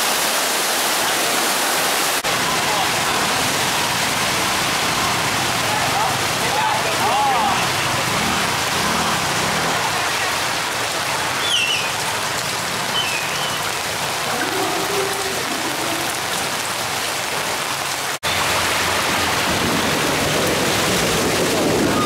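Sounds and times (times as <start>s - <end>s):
heavy rain on flooded street: 0.0s - 22.0s.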